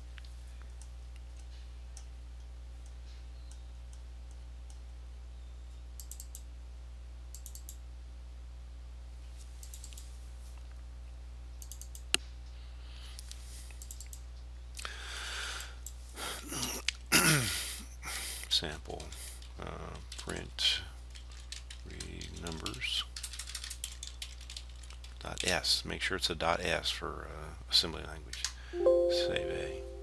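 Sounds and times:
computer mouse clicks: 6.0 - 6.5, 7.3 - 7.8, 9.6 - 10.1, 11.6 - 12.2, 13.2 - 14.2.

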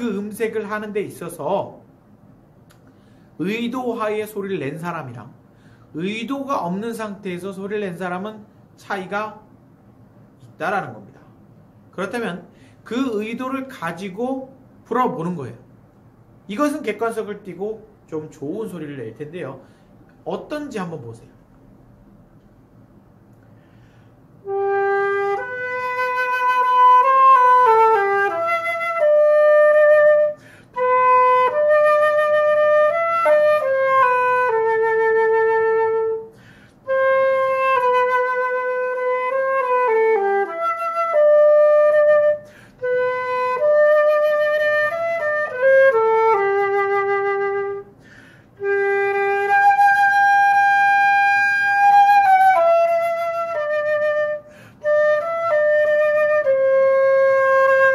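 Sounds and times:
person breathing: 2.8 - 3.4, 5.4 - 6.0, 12.5 - 12.9, 19.6 - 20.1, 23.4 - 24.4, 30.4 - 30.8, 36.3 - 36.8, 42.4 - 42.8, 47.9 - 48.6, 54.4 - 54.8
flute playing slow melody: 24.4 - 48.0, 48.6 - 57.9.

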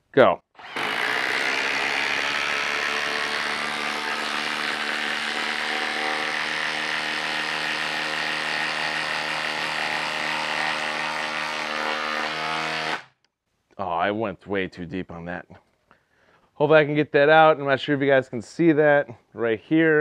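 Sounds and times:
impact driver hammering: 0.6 - 13.1.

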